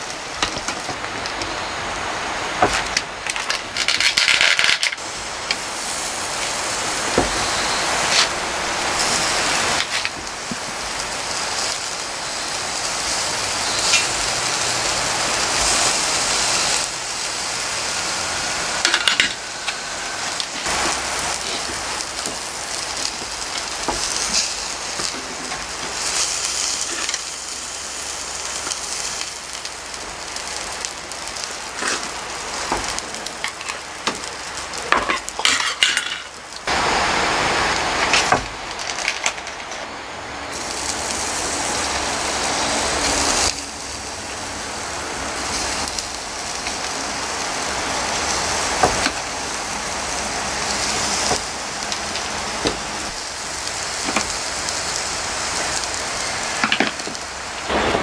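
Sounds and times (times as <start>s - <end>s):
food sizzling on a grill: 0.0s - 39.8s, 40.5s - 58.0s.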